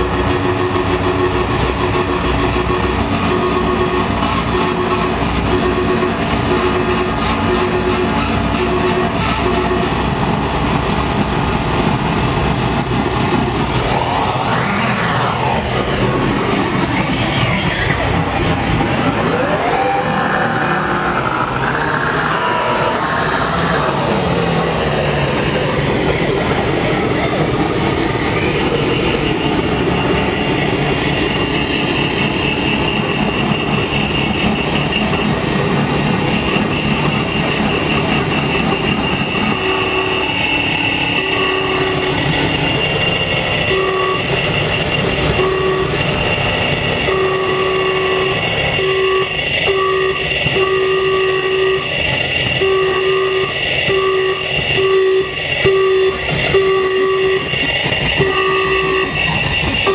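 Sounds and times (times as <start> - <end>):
electronic noise drone: 13.0 - 59.9.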